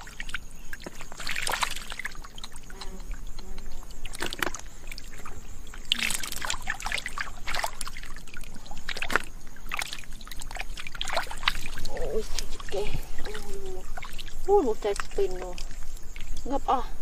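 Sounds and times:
hands splashing in muddy water: 0:04.0 - 0:15.8.

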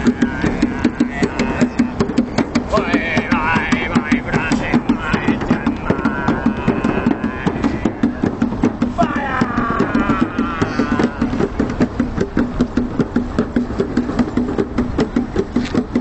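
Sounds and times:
people's voices: 0:00.0 - 0:12.0
fast rhythmic drumming: 0:00.0 - 0:16.0.

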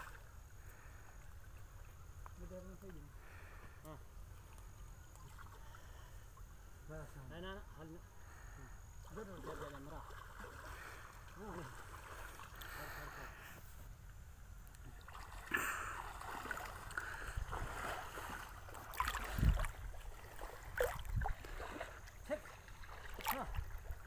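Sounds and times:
water sloshing and splashing: 0:00.0 - 0:02.3, 0:04.3 - 0:06.6, 0:09.0 - 0:13.0, 0:14.6 - 0:24.0.

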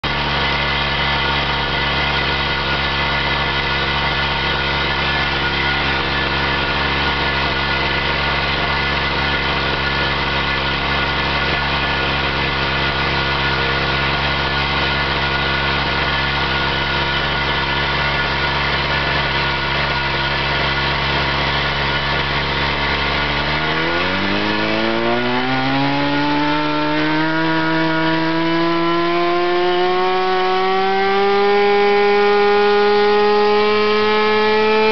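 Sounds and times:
small model engine running: 0:00.1 - 0:34.9.

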